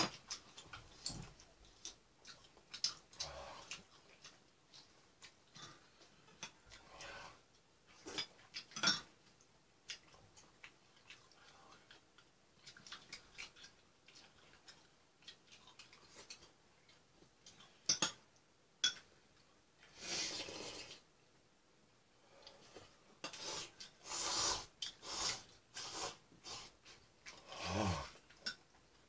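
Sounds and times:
slurping from a spoon: 19.9 - 21.0, 23.3 - 26.8.

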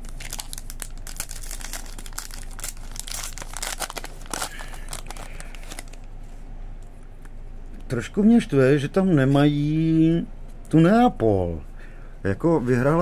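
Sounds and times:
wrapper crinkling and tearing: 0.0 - 6.1.

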